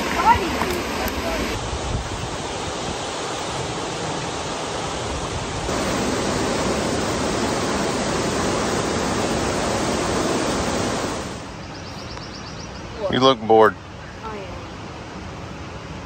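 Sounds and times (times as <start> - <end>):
water rushing from spillway: 0.0 - 11.5.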